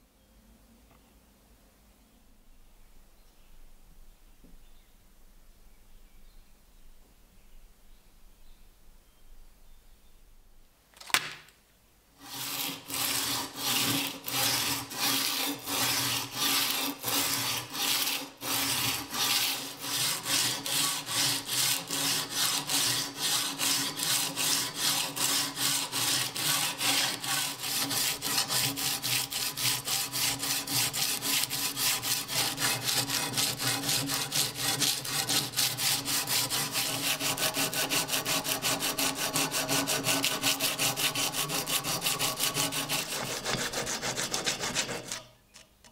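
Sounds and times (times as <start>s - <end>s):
sandpaper rasping on rusty metal: 12.2s - 45.2s.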